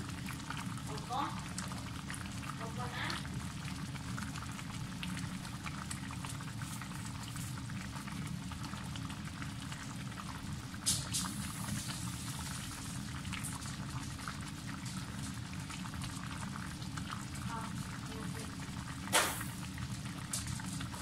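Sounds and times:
pot of broth simmering: 0.0s - 21.0s
sharp crackle: 19.1s - 19.6s.

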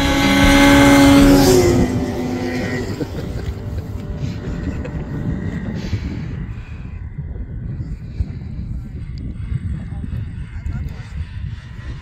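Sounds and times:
snowmobile engine passing by: 0.0s - 7.4s.

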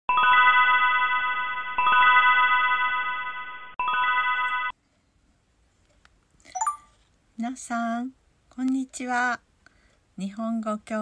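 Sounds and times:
bright bell-like chime jingle: 0.1s - 4.7s, 6.6s - 7.0s.

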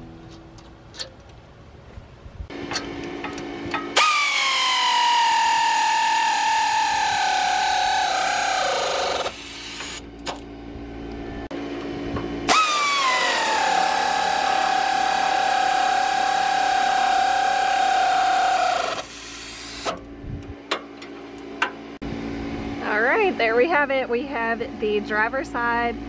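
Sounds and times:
power tool motor whine: 4.0s - 10.1s, 12.5s - 19.9s.

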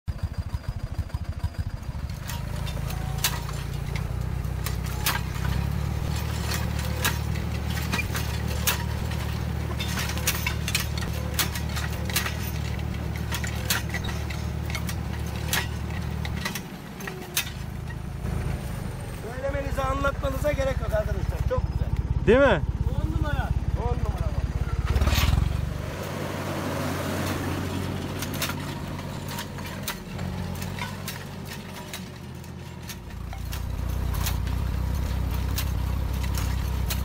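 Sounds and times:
tractor diesel engine running: 0.0s - 37.0s
sharp clicks and knocks of implement: 0.1s - 18.3s, 27.1s - 37.0s.

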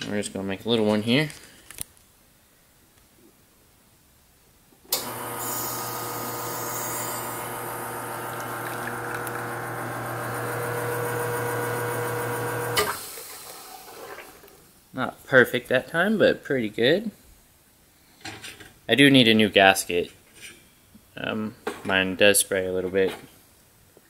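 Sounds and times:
espresso machine pump humming: 5.0s - 13.0s.

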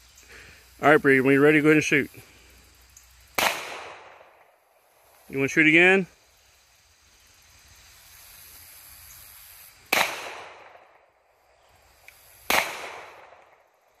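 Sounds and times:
pistol shots with echo: 3.4s - 4.5s, 9.9s - 11.0s, 12.5s - 13.6s.

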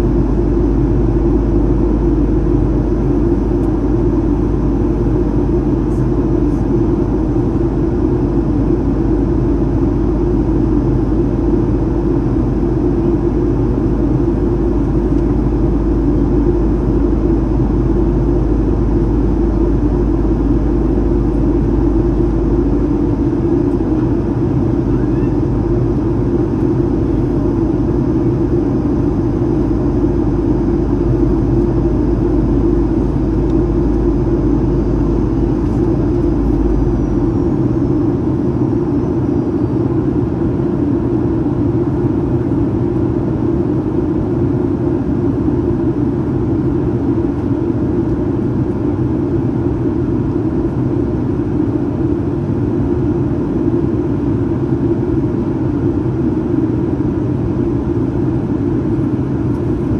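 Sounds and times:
deep low rumble: 0.0s - 41.6s
faint high whine: 0.0s - 43.8s
aircraft engine and airflow noise: 0.0s - 59.9s.

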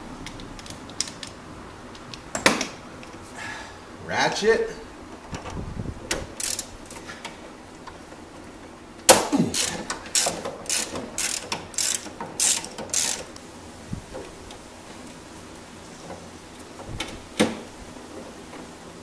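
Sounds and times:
hand ratchet clicking: 6.4s - 6.7s, 9.5s - 13.4s.

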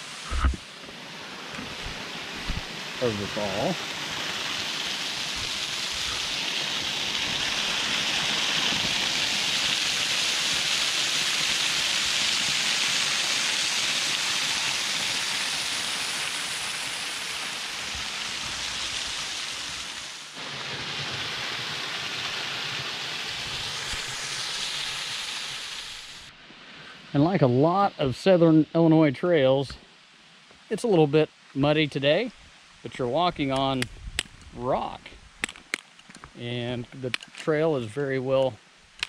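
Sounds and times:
waterfall rushing over rock: 0.0s - 26.3s.

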